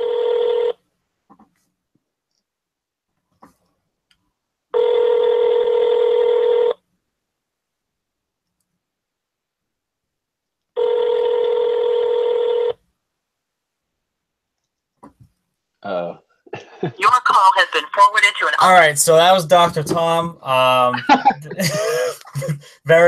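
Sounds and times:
telephone ringback tone: 0:00.0 - 0:00.7, 0:04.8 - 0:06.8, 0:10.8 - 0:12.7.

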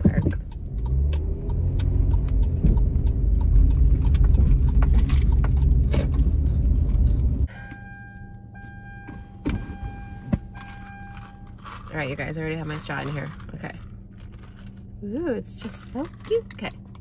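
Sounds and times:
car engine running: 0:00.0 - 0:17.0
electronic dashboard chime: 0:07.5 - 0:11.6.

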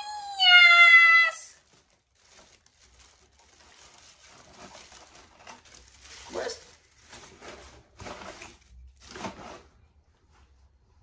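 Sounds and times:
woman's high-pitched exclamation: 0:00.0 - 0:01.6
wrapping crinkling and rustling: 0:00.1 - 0:09.9.

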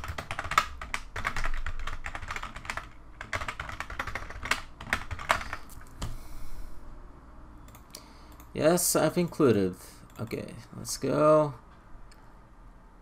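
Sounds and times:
typing on a computer keyboard: 0:00.0 - 0:06.2.

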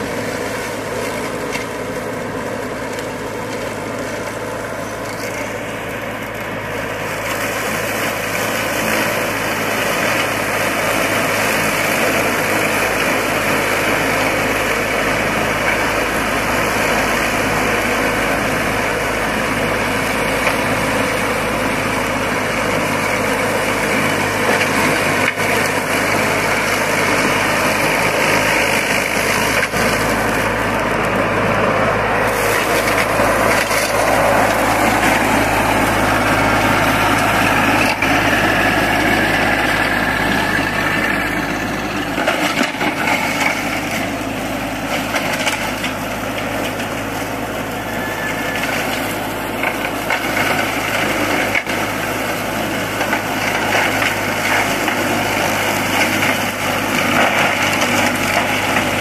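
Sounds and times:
mower deck cutting tall grass: 0:00.0 - 0:59.0
ride-on mower engine running: 0:00.0 - 0:59.0.

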